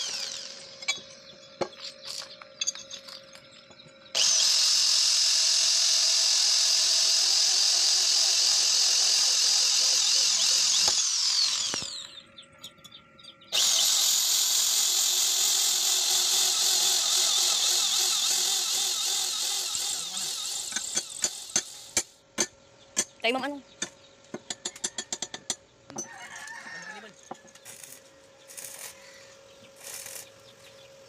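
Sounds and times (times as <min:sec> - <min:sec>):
electric drill whining: 0:00.0 - 0:02.2, 0:04.1 - 0:12.2, 0:13.5 - 0:22.1.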